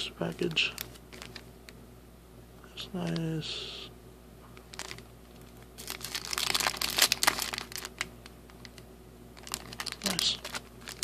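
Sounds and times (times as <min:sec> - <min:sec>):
plastic wrapper crinkling: 0:00.6 - 0:01.5, 0:04.6 - 0:11.0.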